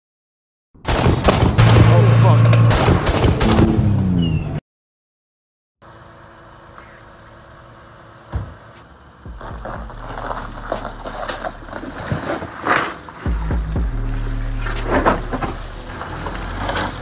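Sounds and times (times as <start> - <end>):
car engine running: 5.8 - 17.0
tyres crackling on ice: 9.3 - 17.0.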